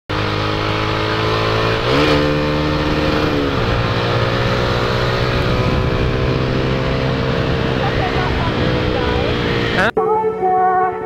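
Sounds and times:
motorcycle engine revving: 0:00.1 - 0:10.0
wind rush: 0:02.9 - 0:09.8.

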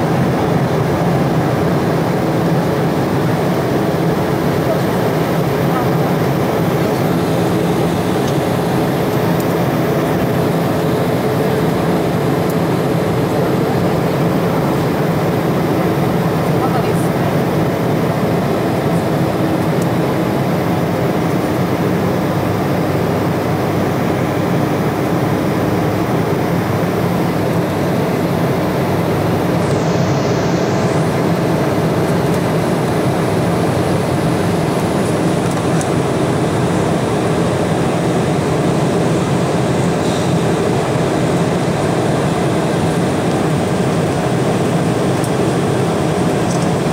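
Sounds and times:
airliner cabin roar: 0:00.0 - 0:46.9.

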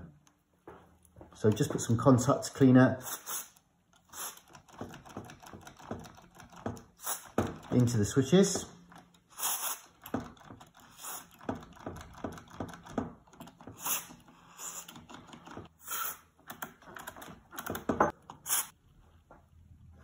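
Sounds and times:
aerosol spray hissing: 0:03.0 - 0:04.4, 0:09.4 - 0:09.8.

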